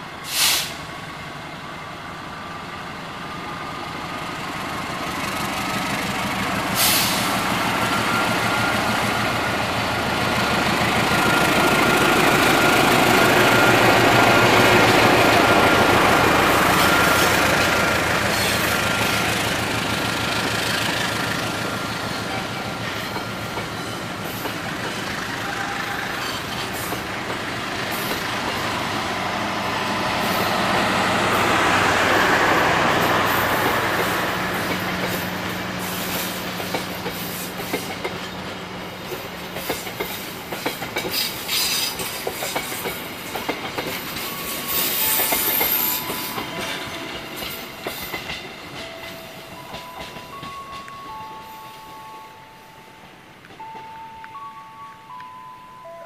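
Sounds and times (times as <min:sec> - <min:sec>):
train wheels clattering over rail joints: 0:33.4 - 0:50.9.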